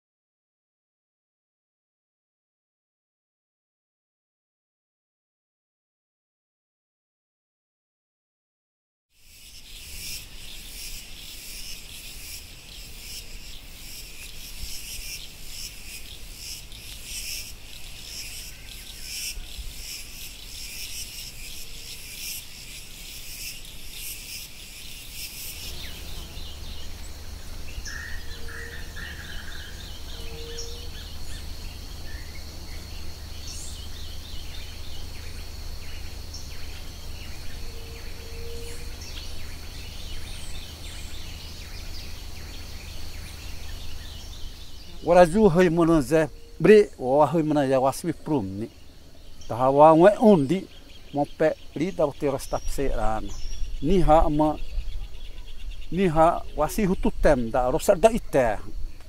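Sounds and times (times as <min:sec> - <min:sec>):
crickets chirring: 0:09.2 - 0:59.0
high insect whine: 0:09.2 - 0:59.0
short bird calls: 0:09.6 - 0:31.5
low steady hum: 0:25.5 - 0:51.8.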